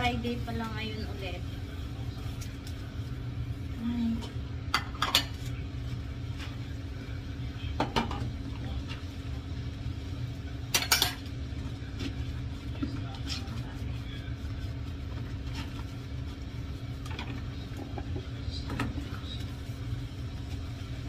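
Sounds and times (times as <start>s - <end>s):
steady low hum: 0.0s - 21.0s
dishes and cutlery clinking: 4.7s - 5.6s, 10.7s - 11.3s.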